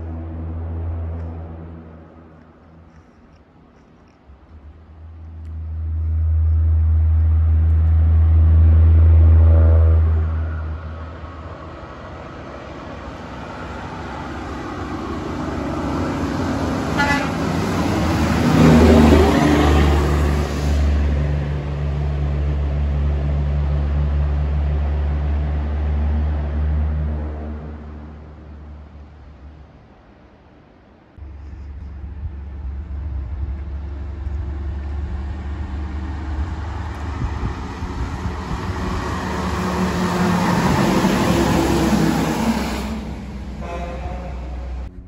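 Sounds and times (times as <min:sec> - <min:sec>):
truck passing by: 0:00.0 - 0:29.7, 0:31.2 - 0:45.0
diesel truck engines rumbling: 0:00.0 - 0:45.0.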